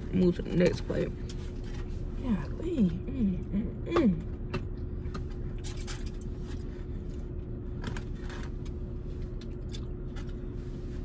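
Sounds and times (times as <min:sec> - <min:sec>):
car cabin hum: 0:00.0 - 0:05.6.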